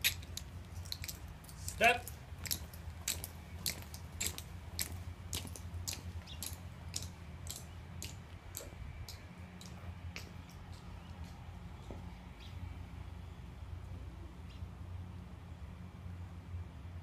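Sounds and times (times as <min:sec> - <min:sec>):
marching footsteps on concrete: 0:00.0 - 0:12.5.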